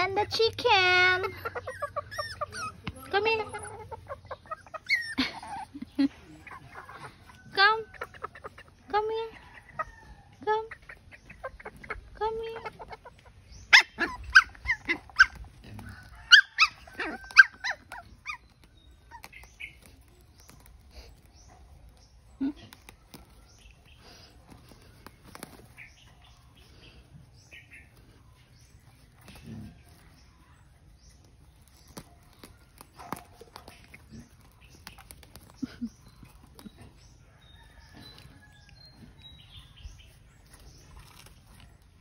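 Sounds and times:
puppies yipping and whimpering: 0:00.8 - 0:07.4, 0:10.9 - 0:21.6.

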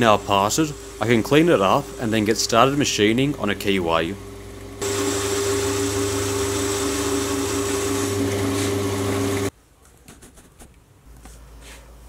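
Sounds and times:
lathe running and cutting: 0:00.0 - 0:09.5.

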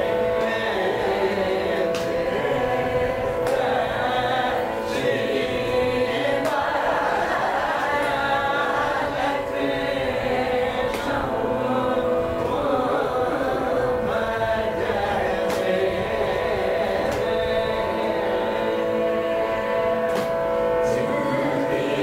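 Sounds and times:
group singing in unison: 0:00.0 - 0:22.0
steady drone: 0:00.0 - 0:22.0
hand claps: 0:01.8 - 0:02.3, 0:03.4 - 0:03.8, 0:06.2 - 0:06.8, 0:10.9 - 0:11.3, 0:15.5 - 0:15.8, 0:17.0 - 0:17.3, 0:20.1 - 0:20.5.

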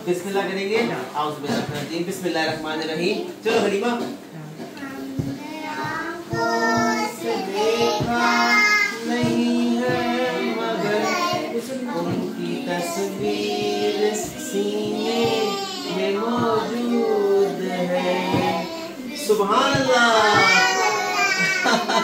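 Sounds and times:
girls singing: 0:04.8 - 0:22.0.

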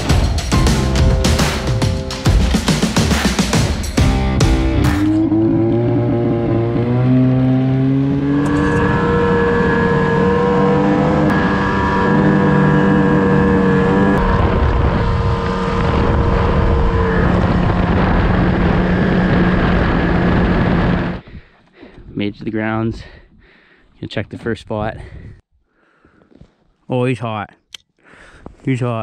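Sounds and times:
snowmobile engines running: 0:04.1 - 0:21.2
wind noise on microphone: 0:13.6 - 0:22.4, 0:24.4 - 0:25.4.

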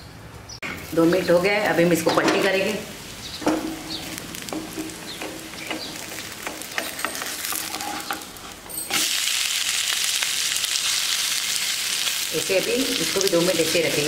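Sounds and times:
loud sizzling in a pan: 0:00.8 - 0:14.0
spatula scraping a frying pan: 0:03.4 - 0:09.4.

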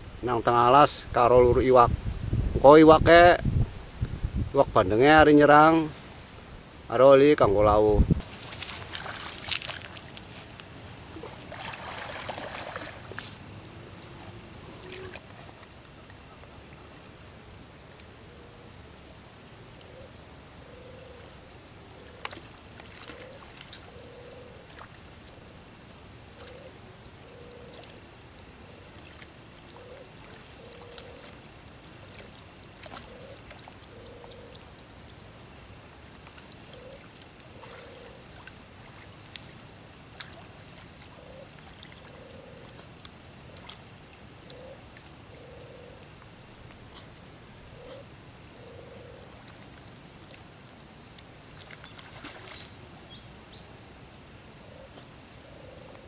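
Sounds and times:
steady high-pitched whine: 0:04.5 - 0:22.9
water sloshing faintly: 0:07.6 - 0:17.2, 0:35.3 - 0:45.5, 0:46.2 - 0:53.1.

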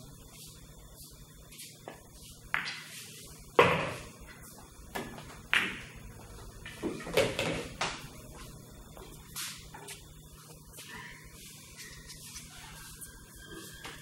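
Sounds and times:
pool balls colliding: 0:02.5 - 0:04.2, 0:04.9 - 0:08.2.

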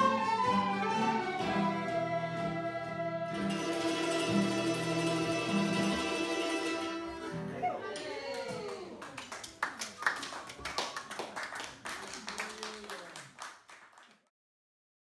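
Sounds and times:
people chattering: 0:00.0 - 0:13.4
people clapping: 0:07.8 - 0:14.3.

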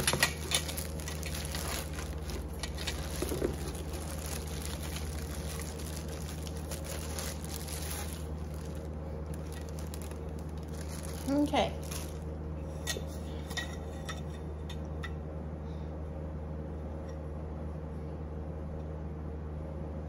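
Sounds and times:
plastic bag crinkling: 0:00.0 - 0:12.3
low hum: 0:00.0 - 0:20.0.

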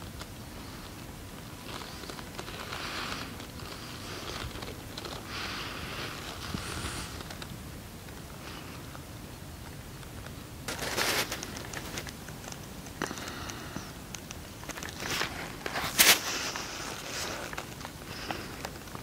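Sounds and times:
short clicks and crackles: 0:09.6 - 0:19.0.

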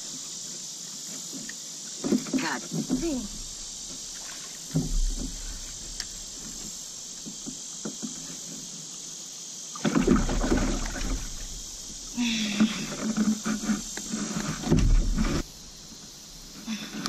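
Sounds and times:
insects droning: 0:00.0 - 0:17.0
rumbling rustling noise: 0:02.4 - 0:08.7, 0:10.0 - 0:16.6.

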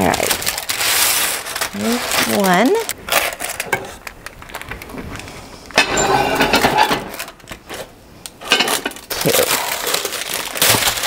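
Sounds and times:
parchment paper rustling: 0:00.0 - 0:05.5, 0:09.0 - 0:11.0.

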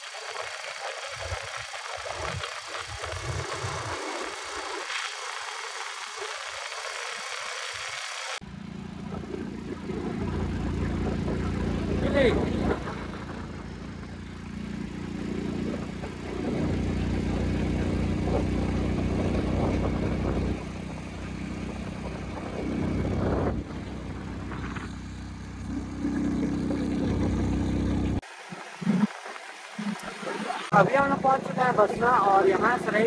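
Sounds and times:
wind rushing over microphone: 0:01.1 - 0:04.8, 0:15.4 - 0:25.1
motorcycle engine rumble: 0:08.4 - 0:28.2.

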